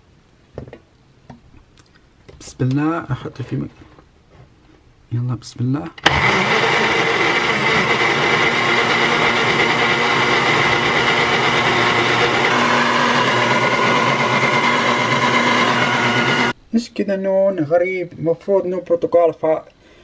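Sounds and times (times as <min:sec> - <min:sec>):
blender running: 0:06.0 - 0:16.6.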